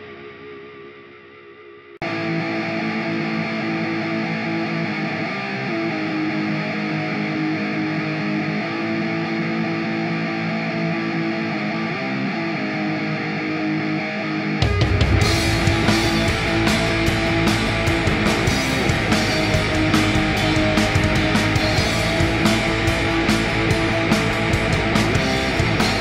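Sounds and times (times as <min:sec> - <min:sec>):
electric guitar ringing chords: 0:00.0 - 0:26.0.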